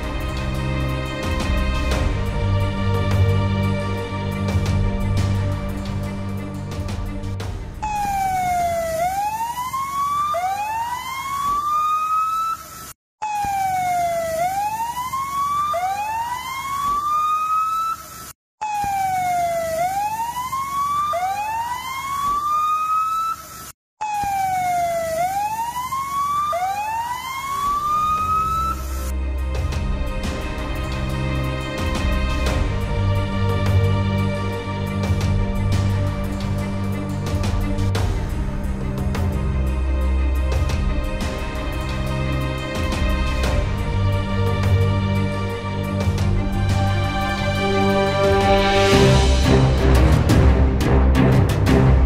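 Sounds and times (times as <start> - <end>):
background music: 0.0 - 9.4, 26.7 - 52.0
emergency vehicle siren wailing: 7.8 - 29.7, 38.9 - 49.4.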